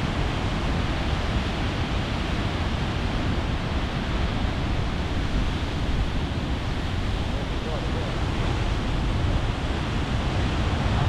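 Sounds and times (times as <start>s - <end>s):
wind buffeting microphone: 0.0s - 11.0s
ocean surf breaking: 4.1s - 11.0s.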